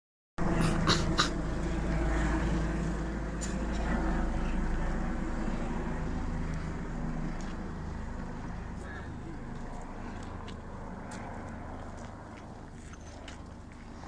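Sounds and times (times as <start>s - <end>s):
helicopter drone overhead: 0.4s - 14.0s.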